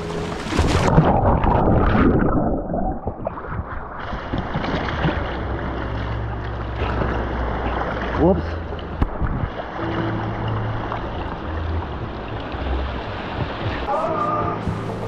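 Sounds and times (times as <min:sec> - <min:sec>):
muffled underwater rush of water: 0:00.0 - 0:15.0
steady rush of water: 0:04.1 - 0:15.0.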